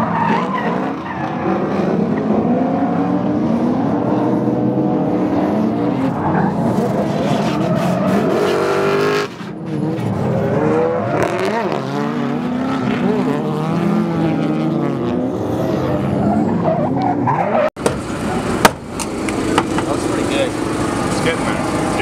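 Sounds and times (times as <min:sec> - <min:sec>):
car engines revving hard: 0:00.0 - 0:22.0
tyre squeal: 0:06.0 - 0:10.1.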